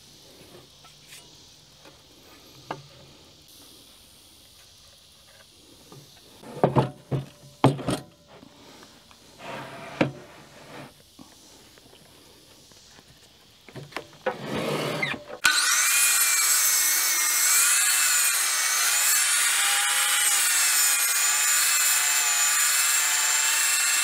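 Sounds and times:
wood scraping: 9.4 - 11.0, 14.2 - 15.2.

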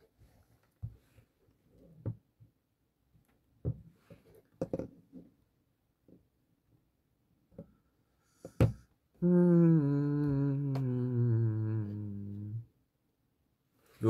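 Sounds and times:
man humming: 9.2 - 12.7.

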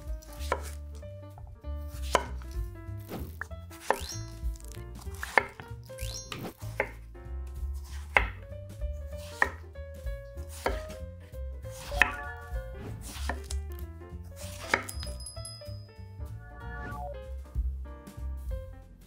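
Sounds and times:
knife chopping on wooden board: 0.2 - 0.8, 1.9 - 7.0, 7.6 - 8.4, 9.0 - 9.7, 10.3 - 11.0, 13.0 - 13.6, 14.4 - 15.1.

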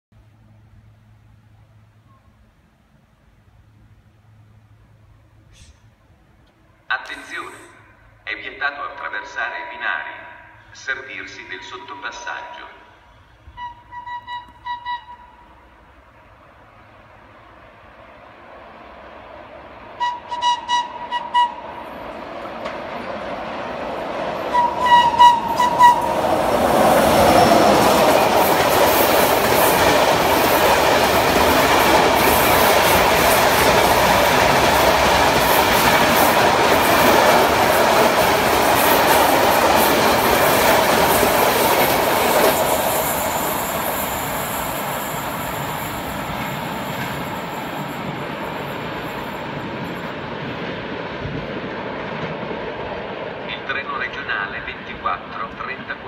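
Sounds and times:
locomotive horn toots: 13.4 - 15.5, 20.0 - 21.6, 24.5 - 26.2
train wheels on rails: 18.0 - 55.0.

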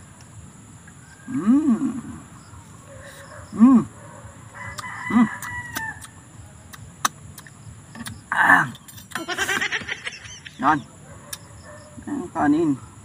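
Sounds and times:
chickens calling: 9.2 - 11.9.

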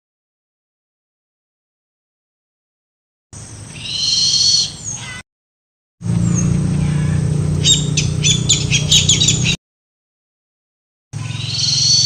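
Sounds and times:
bird calls: 3.7 - 5.2, 6.2 - 9.6, 11.2 - 12.0.

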